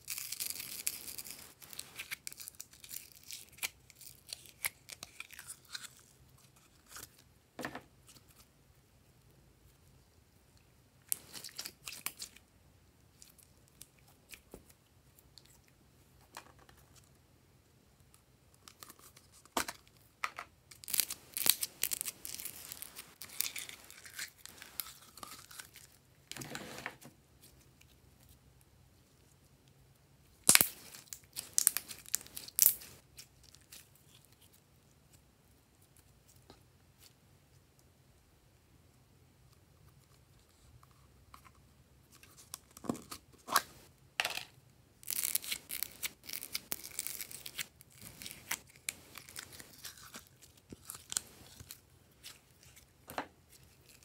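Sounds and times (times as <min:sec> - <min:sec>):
slime crackling and popping: 0:20.7 - 0:25.8, 0:30.4 - 0:33.0, 0:45.0 - 0:52.7.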